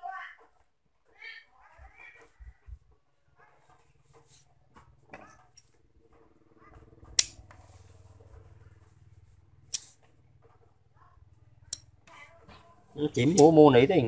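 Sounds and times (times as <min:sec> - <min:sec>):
scissors snipping wire: 0:09.7 - 0:10.0, 0:13.2 - 0:13.6.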